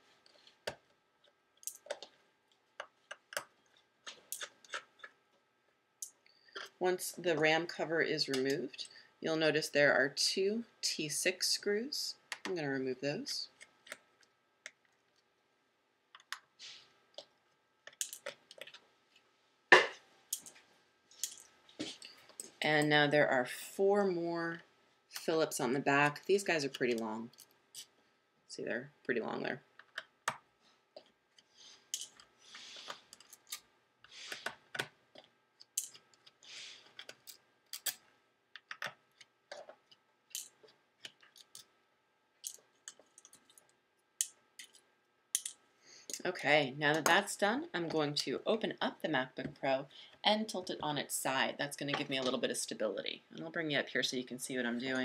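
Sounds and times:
small metal clicks: 17.9s - 18.8s, 34.4s - 41.7s.

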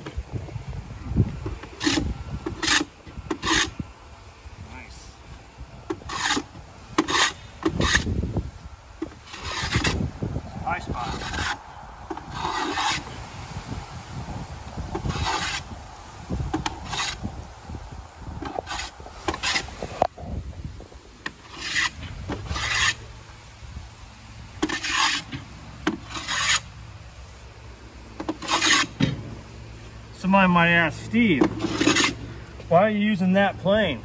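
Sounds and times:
hand plane rasping on wood: 2.6s - 3.7s, 6.0s - 8.1s, 9.3s - 10.0s, 11.1s - 11.6s, 12.2s - 13.1s, 15.0s - 15.6s, 21.5s - 23.0s, 24.6s - 25.3s, 25.9s - 26.6s, 28.4s - 29.0s, 31.6s - 32.2s.

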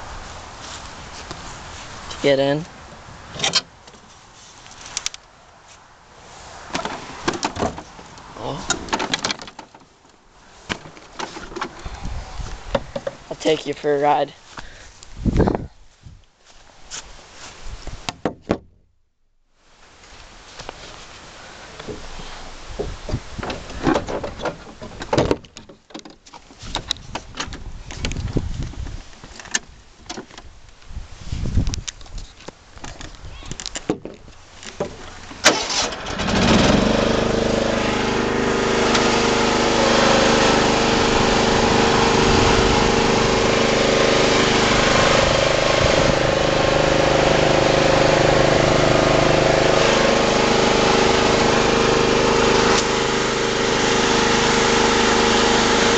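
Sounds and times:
handling knocks and clicks: 6.7s - 11.9s, 23.4s - 30.5s, 31.7s - 35.4s
small engine running: 35.6s - 55.9s.

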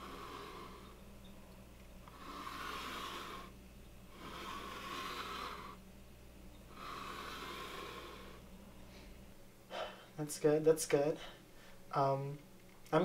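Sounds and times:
slow heavy breathing: 0.0s - 1.2s, 2.0s - 5.8s, 6.6s - 10.2s, 11.1s - 11.9s
steady low hum: 0.0s - 13.0s.

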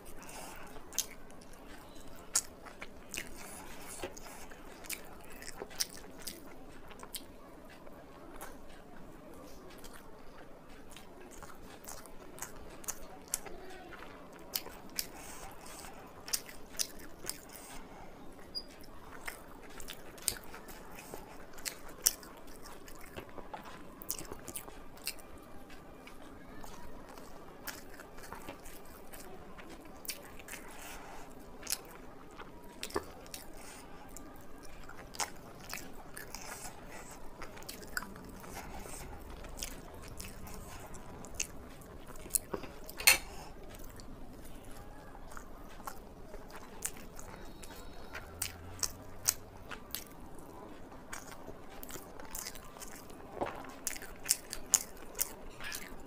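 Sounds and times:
chewing: 0.0s - 56.0s.

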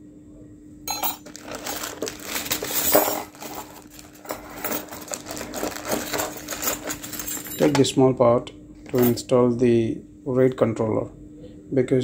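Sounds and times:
plastic bags crinkling: 1.0s - 7.8s
metal brackets clinking: 5.9s - 7.9s.

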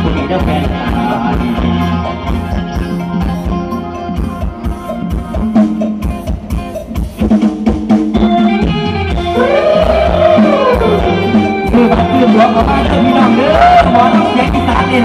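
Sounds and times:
band playing instrumental music: 0.0s - 15.0s
drum kit beat: 0.0s - 15.0s
held bass notes: 8.2s - 15.0s.

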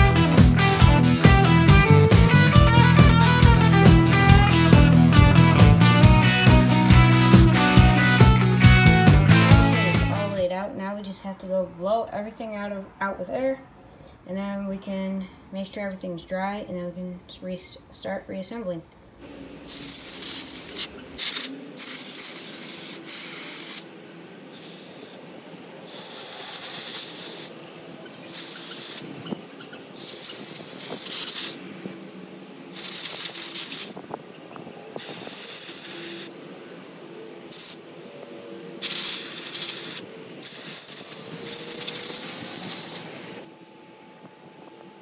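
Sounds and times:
compressed air hissing blasts: 19.6s - 31.7s, 32.7s - 34.3s, 34.9s - 37.8s, 38.8s - 43.8s.

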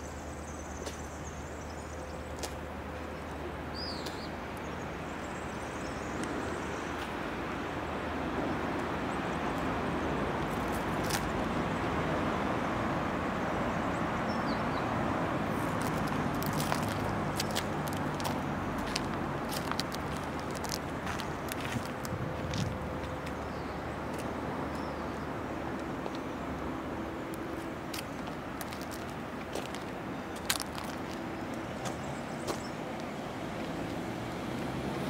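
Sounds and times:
traffic noise: 0.0s - 35.0s
bird chirp: 3.7s - 7.0s.

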